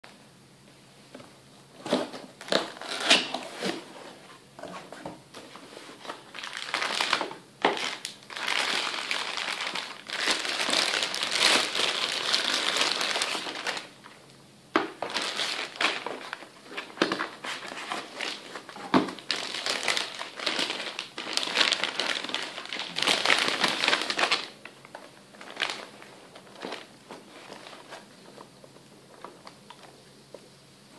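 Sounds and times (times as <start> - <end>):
plastic film crinkling: 5.9 - 14.1, 14.8 - 28.5.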